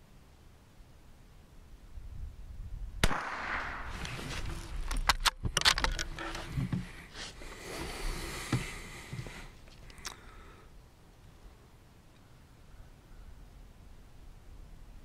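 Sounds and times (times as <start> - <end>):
rifle shot: 3.0 - 4.3.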